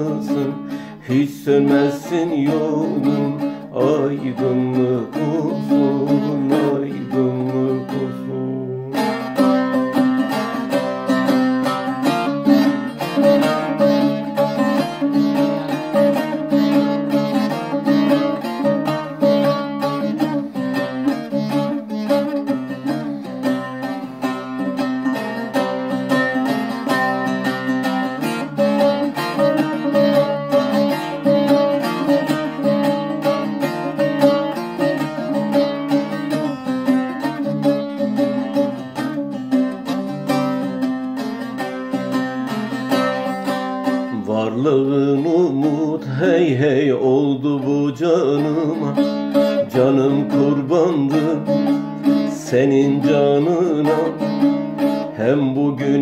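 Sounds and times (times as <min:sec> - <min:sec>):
man singing: 0:00.0 - 0:11.3, 0:43.9 - 0:56.0
long-necked lute picked rapidly: 0:00.0 - 0:56.0.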